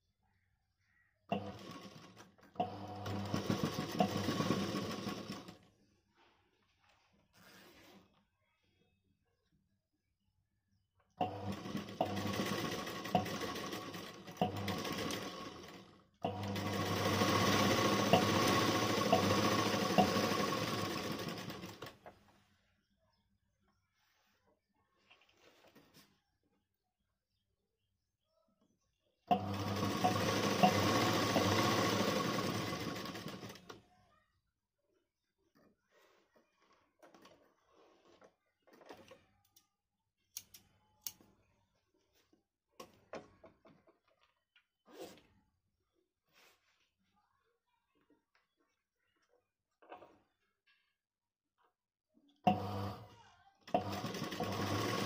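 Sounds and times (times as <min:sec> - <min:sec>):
sewing machine running: 0:01.3 - 0:05.7, 0:11.2 - 0:22.0, 0:29.3 - 0:33.8, 0:52.5 - 0:55.0.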